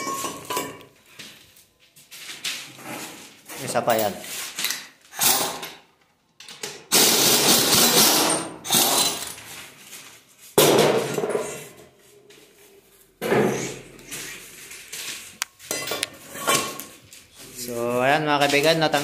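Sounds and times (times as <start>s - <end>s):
metal clanking and scraping: 14.9s - 17.1s.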